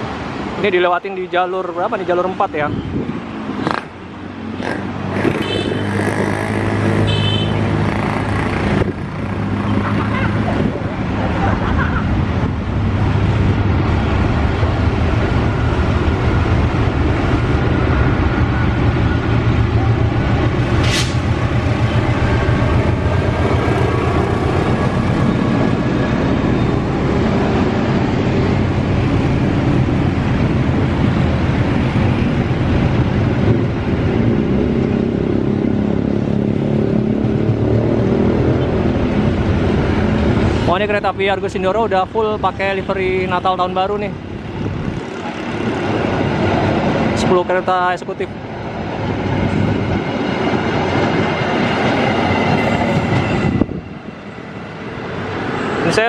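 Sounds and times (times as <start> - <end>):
diesel locomotive passing: 0.0 - 56.0
train coaches rumbling on rails: 0.0 - 56.0
brief sharp sound: 20.8 - 21.3.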